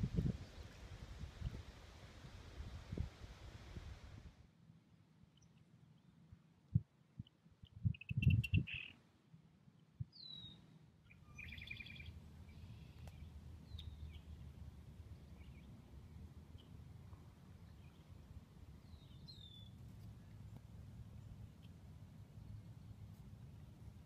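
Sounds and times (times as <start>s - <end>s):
faint bird calls: 7.2s - 9.0s, 10.1s - 14.6s.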